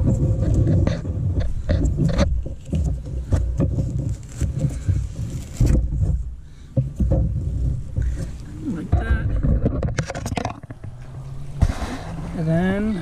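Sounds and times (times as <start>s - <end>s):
hands handling plastic tubing: 0.4s - 8.6s.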